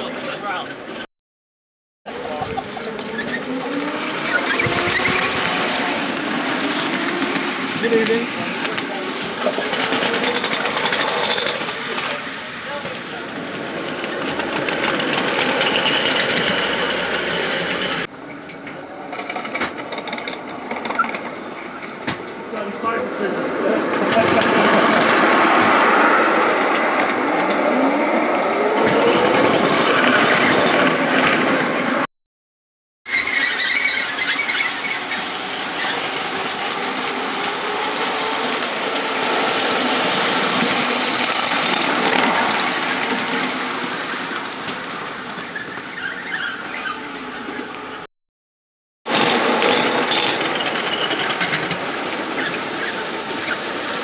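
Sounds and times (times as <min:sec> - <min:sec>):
miniature train on rails: 0:00.0 - 0:01.1, 0:02.1 - 0:32.1, 0:33.1 - 0:48.1, 0:49.1 - 0:54.0
miniature train mechanical chatter: 0:07.4 - 0:22.0, 0:33.1 - 0:39.1, 0:49.1 - 0:54.0.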